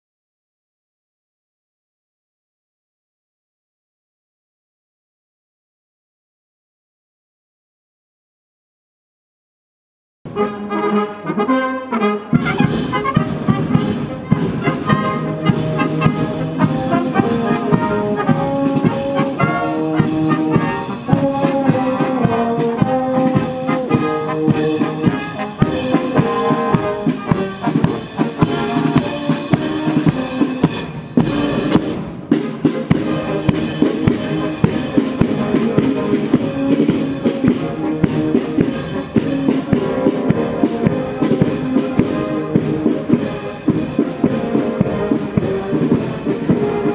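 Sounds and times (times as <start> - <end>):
brass band playing a march: 10.3 - 46.9
steady drum beat: 12.3 - 46.9.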